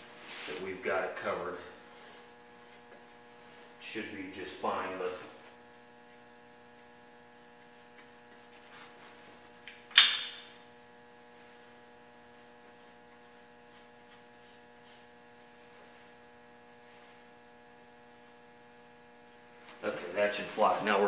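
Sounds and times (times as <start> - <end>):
electrical hum: 0.0 - 21.0.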